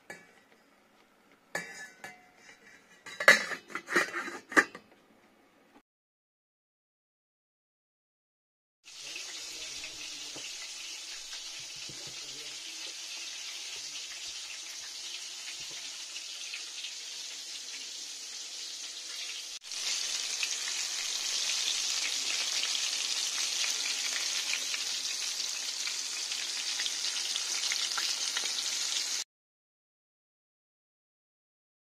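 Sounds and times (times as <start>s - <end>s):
chicken sizzling in hot oil: 8.8s - 29.3s.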